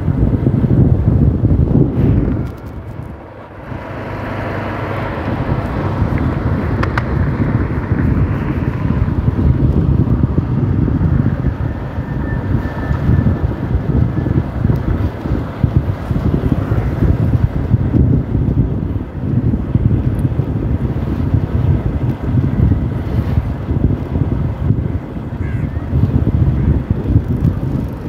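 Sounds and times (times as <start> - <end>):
wind on microphone: 0.0 - 28.0.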